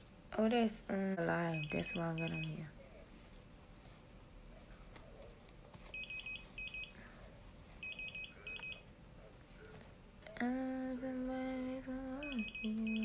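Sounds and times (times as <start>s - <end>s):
medical alarm beeping: 1.4s - 2.7s, 5.9s - 7.0s, 7.8s - 8.8s, 12.2s - 13.0s
woman humming: 10.3s - 13.0s.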